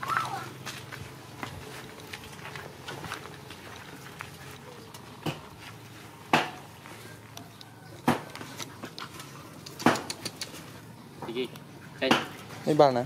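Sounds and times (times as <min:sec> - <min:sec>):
dogs play-fighting: 0:01.8 - 0:11.0.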